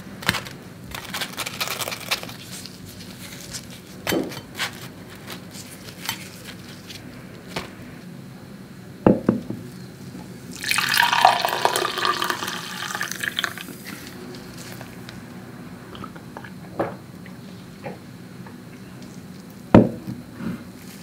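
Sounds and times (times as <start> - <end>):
coffee pouring into glass mug: 10.6 - 13.7.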